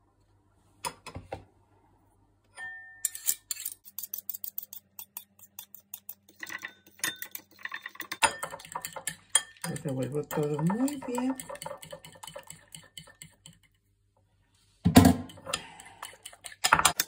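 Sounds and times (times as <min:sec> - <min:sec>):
cutlery clinking on ceramic bowl: 0:05.2 - 0:13.6.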